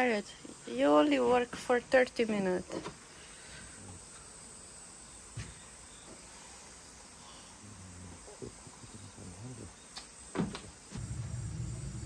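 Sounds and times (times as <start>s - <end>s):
insects chirring: 0.0s - 12.0s
sharp click: 9.9s - 10.7s.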